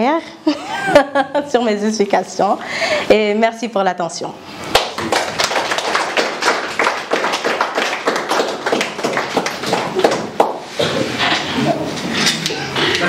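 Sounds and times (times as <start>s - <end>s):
audience applauding: 4.7s - 10.8s.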